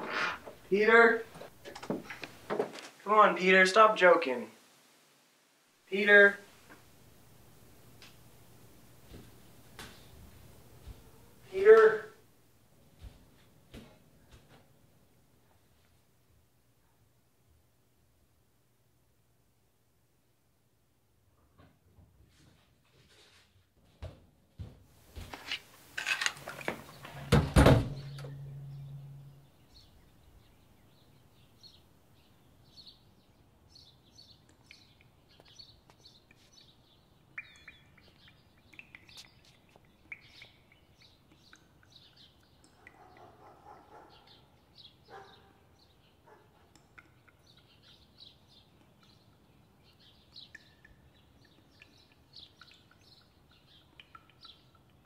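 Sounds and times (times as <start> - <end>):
low hum: 26.9 - 30.8
loud knocks and clatter: 27.2 - 28.6
bird chirps: 27.9 - 33.1, 33.7 - 46.2, 46.8 - 55.0.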